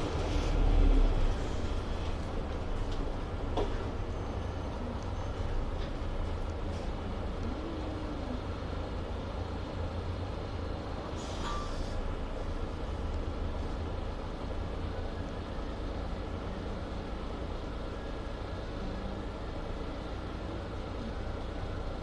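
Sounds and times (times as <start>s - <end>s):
bus engine and road rumble: 0.0s - 22.0s
brief hiss: 11.2s - 12.0s.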